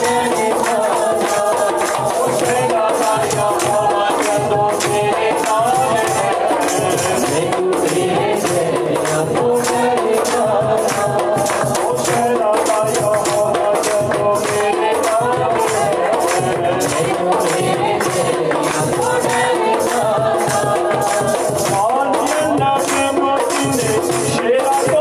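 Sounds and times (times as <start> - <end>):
congas played by hand: 0.0 - 25.0
men singing through microphones: 0.0 - 25.0.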